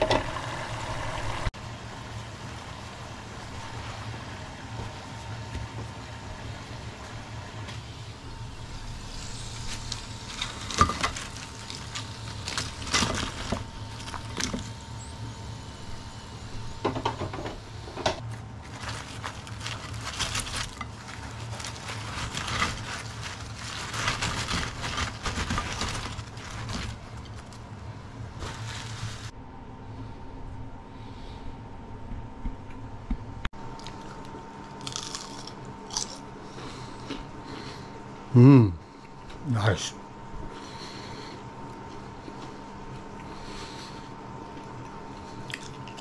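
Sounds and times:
steady low hum: 0:00.0 - 0:46.0
paper rustling and crinkling: 0:09.6 - 0:14.7, 0:18.2 - 0:29.3.

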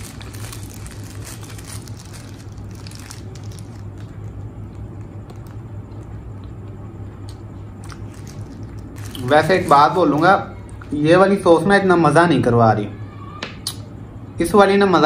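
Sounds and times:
close-up chewing: 0:00.0 - 0:09.4
steady low hum: 0:00.0 - 0:15.0
wet mouth smacks: 0:13.6 - 0:13.8.

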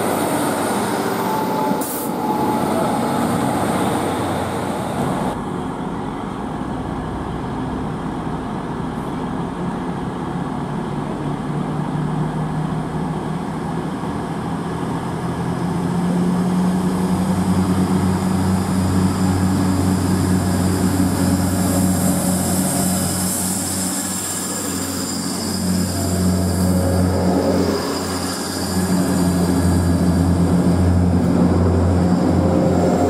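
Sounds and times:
train diesel engines droning: 0:00.0 - 0:33.0
thin high whine: 0:21.6 - 0:33.0.

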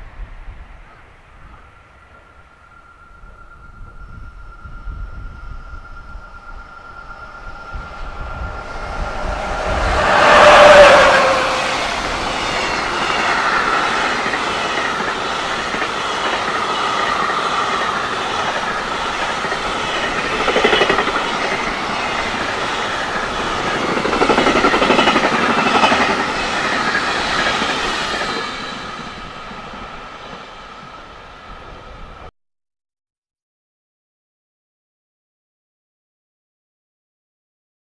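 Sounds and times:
thin steady whine: 0:00.6 - 0:32.3
freight train wheels rumbling: 0:00.8 - 0:32.3.

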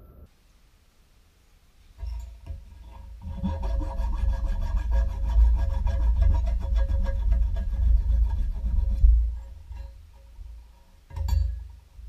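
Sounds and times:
hand file scraping metal: 0:02.0 - 0:11.4.

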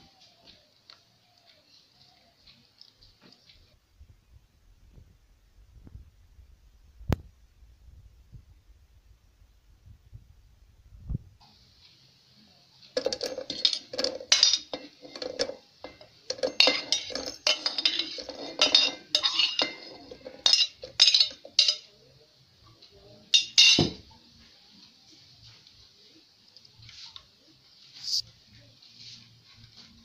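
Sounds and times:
metal utensil clinking on cookware: 0:13.0 - 0:22.0, 0:23.3 - 0:24.0.

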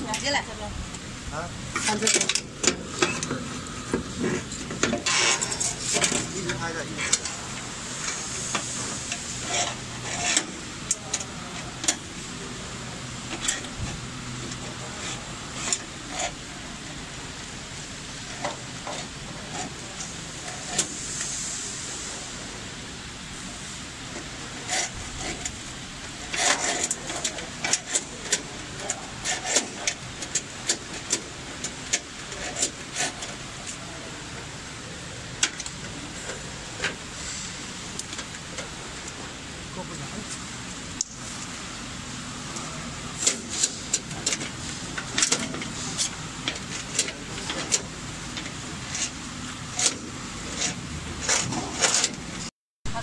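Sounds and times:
steady low hum: 0:00.0 - 0:53.0
tubing scraping cable chain: 0:24.2 - 0:34.3.

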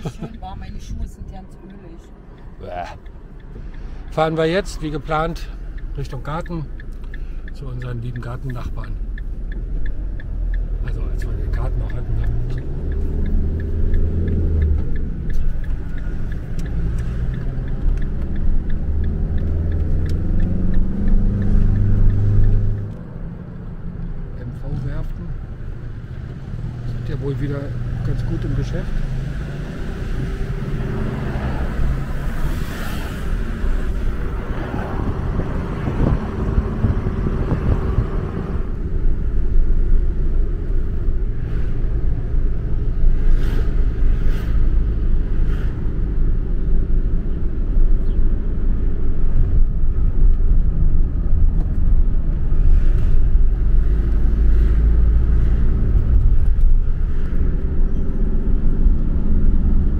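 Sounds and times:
road and wind noise: 0:00.0 - 0:59.9
vehicle engine and road rumble: 0:00.0 - 0:59.9.

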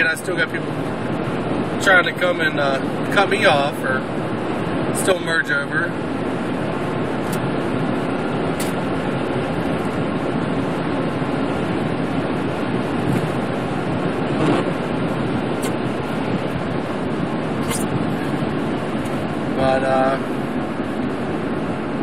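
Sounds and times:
car engine: 0:00.0 - 0:22.0
tyres on wet snowy road: 0:00.0 - 0:22.0.

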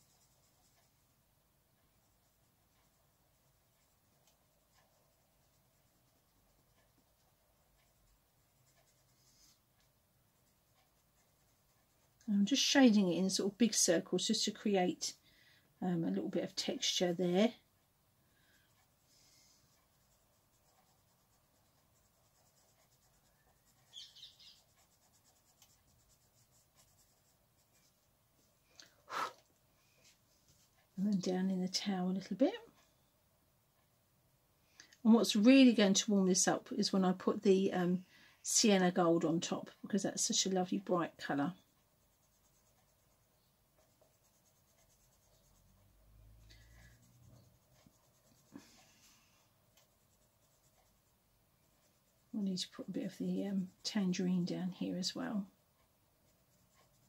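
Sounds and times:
pencil scratching on paper: 0:00.0 - 0:01.2, 0:01.8 - 0:13.8, 0:18.6 - 0:28.1, 0:35.2 - 0:57.0.

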